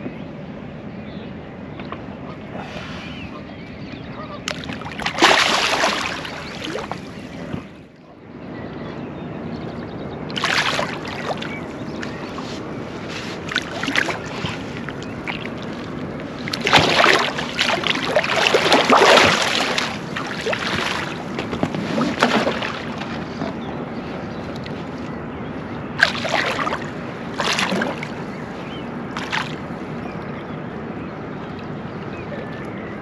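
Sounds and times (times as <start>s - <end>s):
fish splashing at water surface: 4.5s - 7.0s, 10.3s - 12.2s, 13.1s - 23.2s, 26.0s - 28.2s, 29.2s - 29.6s
water wash: 4.5s - 7.0s, 10.3s - 23.6s, 26.0s - 28.3s.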